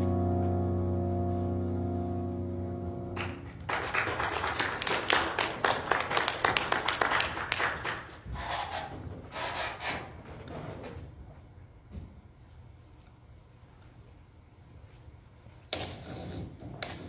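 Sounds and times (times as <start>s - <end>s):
held keyboard chord: 0.0s - 3.7s
audience clapping: 3.1s - 8.2s.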